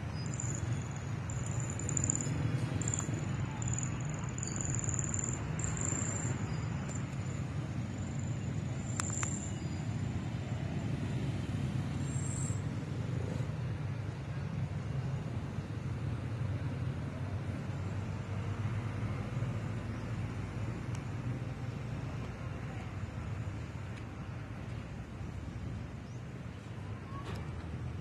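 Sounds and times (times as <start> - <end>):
low outdoor rumble: 0.0 - 28.0.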